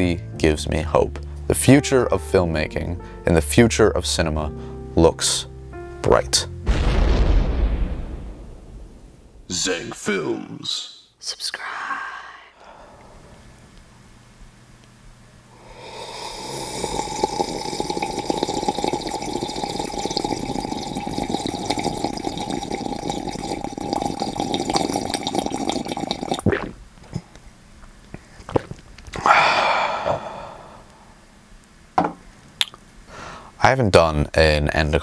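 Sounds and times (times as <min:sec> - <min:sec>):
slurping from a mug: 0:15.7 - 0:27.2.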